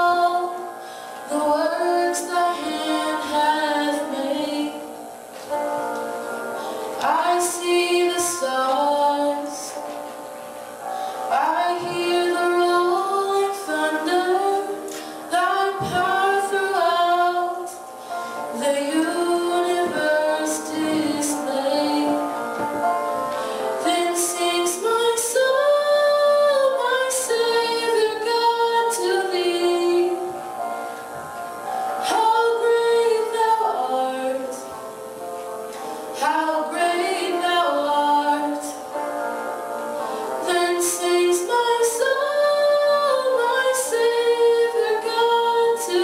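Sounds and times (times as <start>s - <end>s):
woman singing into microphone: 0.0s - 5.6s, 6.9s - 10.2s, 10.9s - 31.0s, 32.0s - 35.0s, 35.7s - 39.0s, 40.0s - 46.0s.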